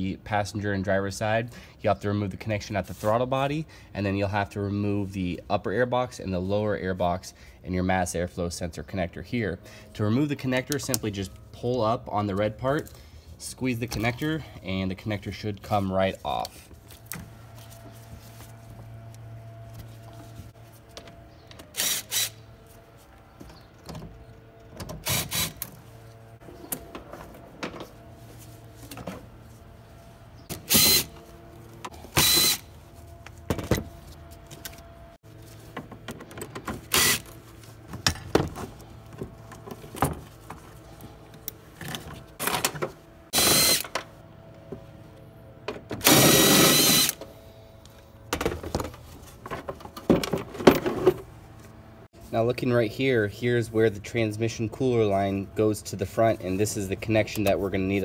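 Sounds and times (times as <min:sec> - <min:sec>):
power ratchet whining: 0:21.5 - 0:22.4, 0:25.0 - 0:25.8, 0:30.5 - 0:32.8, 0:36.8 - 0:37.4, 0:43.3 - 0:44.0, 0:46.0 - 0:47.2.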